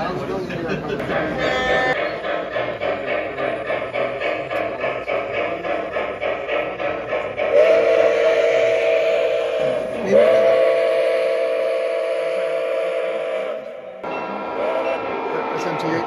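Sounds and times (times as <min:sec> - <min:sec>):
model train chime whistle: 0:07.5 - 0:15.1.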